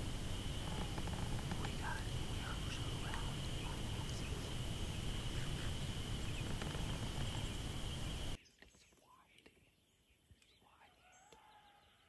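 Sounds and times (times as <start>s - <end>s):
low rumble: 0.0s - 8.4s
steady high whine: 0.0s - 8.4s.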